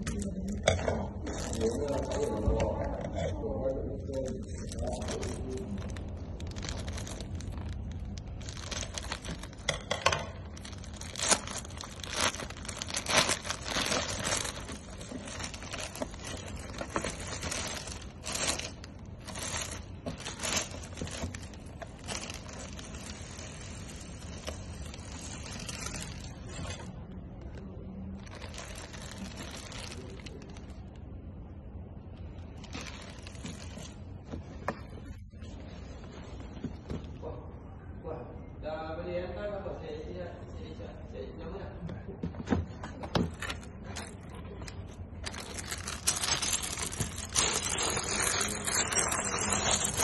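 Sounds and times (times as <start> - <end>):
plastic crinkling and ripping: 0.0 - 31.0, 32.2 - 36.0, 43.3 - 50.0
soft plastic rustling: 0.0 - 31.4, 32.0 - 37.4, 42.2 - 50.0
scissors cutting plastic bag: 10.5 - 26.9, 28.2 - 30.7, 45.2 - 50.0.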